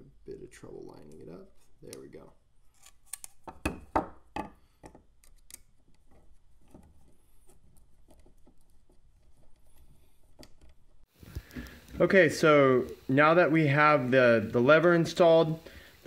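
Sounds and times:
plastic parts rubbing: 0:05.0 - 0:11.9
plastic parts clicking: 0:05.2 - 0:06.1.

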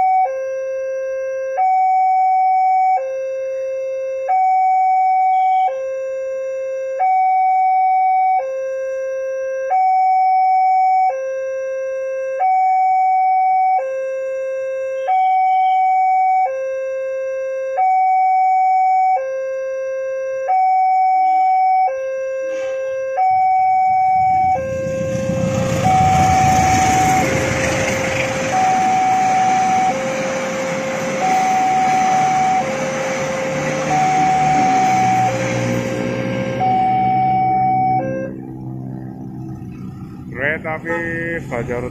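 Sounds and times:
level crossing alarm two-tone warning: 0:00.0 - 0:38.6
passenger train passing: 0:23.9 - 0:36.8, 0:39.6 - 0:41.9.

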